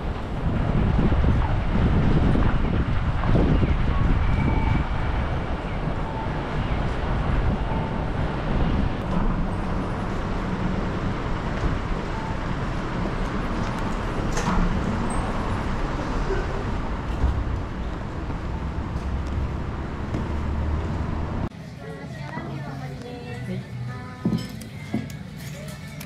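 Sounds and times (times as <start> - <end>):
road traffic rumble: 0.0 - 24.2.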